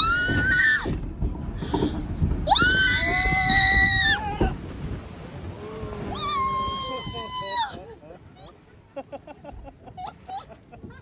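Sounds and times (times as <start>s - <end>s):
water rushing: 0.0s - 11.0s
riders screaming: 2.5s - 4.6s, 5.9s - 7.8s.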